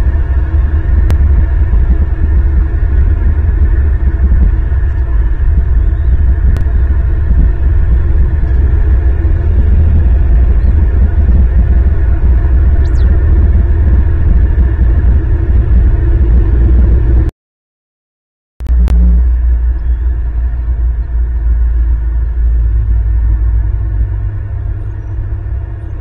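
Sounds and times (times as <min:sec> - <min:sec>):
faint hum: 0:00.0 - 0:17.3, 0:18.6 - 0:26.0
loud low rumble: 0:00.0 - 0:17.3, 0:18.6 - 0:26.0.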